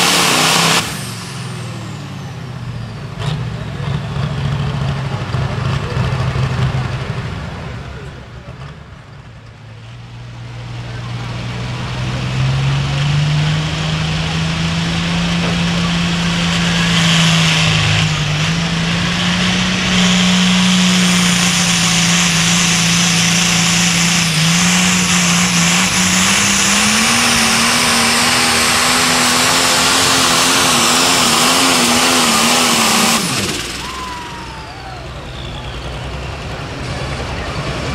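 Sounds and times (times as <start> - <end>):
tractor diesel engine at full load: 0.0 - 37.9.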